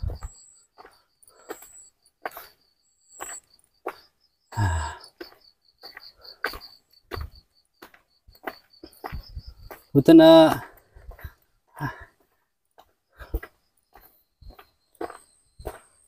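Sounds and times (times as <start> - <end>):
crickets chirping: 0.0 - 16.0
footsteps on stone path: 0.0 - 16.0.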